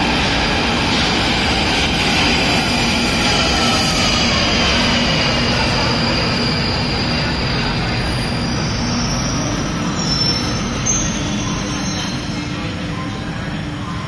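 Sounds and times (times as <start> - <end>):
train wheels rumbling: 0.0 - 14.0
high braking whine: 0.3 - 14.0.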